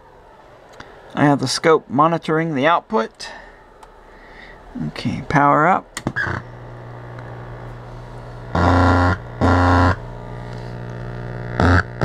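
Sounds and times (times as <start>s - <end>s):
mains hum from speaker: 2.8s - 12.0s
amplifier switch click: 6.0s - 6.4s
harsh buzzing bursts: 6.0s - 12.0s.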